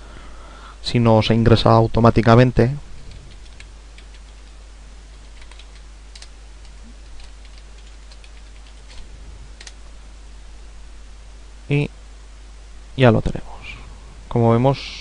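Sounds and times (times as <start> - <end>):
steady hiss and low hum: 0.0 - 15.0
keyboard typing: 3.1 - 9.0, 9.6 - 9.8.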